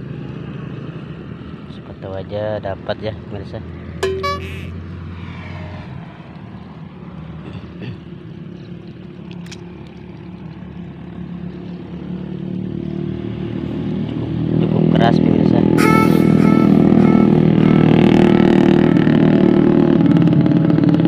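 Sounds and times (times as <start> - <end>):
engine droning: 10.1 - 21.0.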